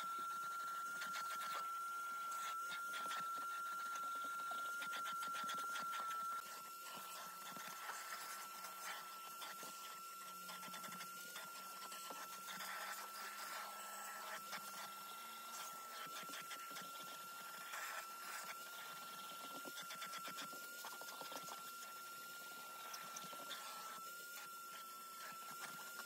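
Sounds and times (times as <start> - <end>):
vacuum cleaner whine: 0.0 - 26.0.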